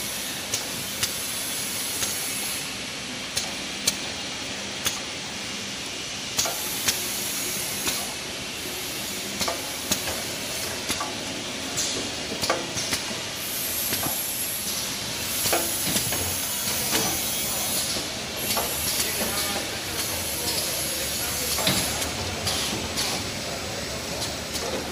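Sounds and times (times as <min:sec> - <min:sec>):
machine clicks and clacks: 0:06.4 - 0:07.0, 0:09.4 - 0:11.2, 0:11.8 - 0:13.1, 0:13.9 - 0:20.8, 0:21.4 - 0:23.3
packing machine running: 0:08.0 - 0:24.9.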